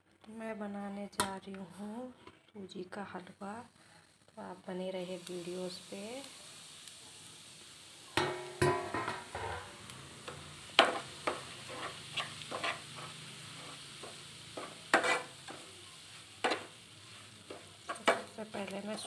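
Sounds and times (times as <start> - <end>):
spatula scraping metal pan: 8.2 - 15.6.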